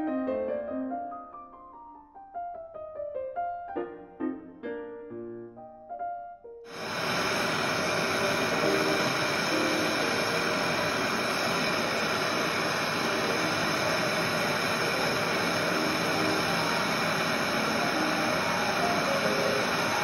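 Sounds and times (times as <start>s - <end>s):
gas torch flame hissing: 6.7s - 20.0s.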